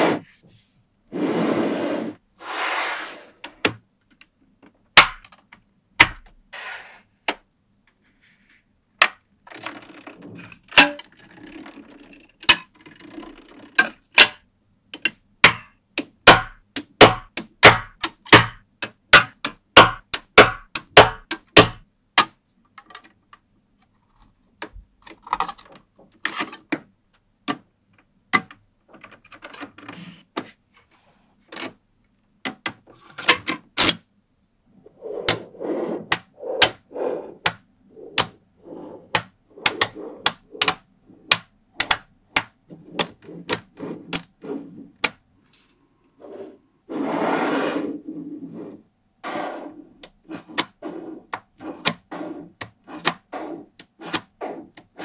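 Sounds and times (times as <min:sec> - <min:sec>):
balls rattling: 0:09.0 - 0:14.2
magnetic balls clicking: 0:39.0 - 0:44.3.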